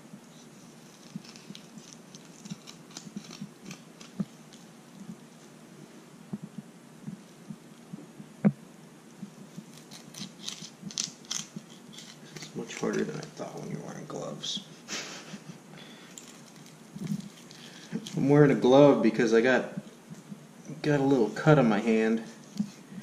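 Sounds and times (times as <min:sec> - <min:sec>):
knife scraping on bone and board: 0:09.6 - 0:13.4.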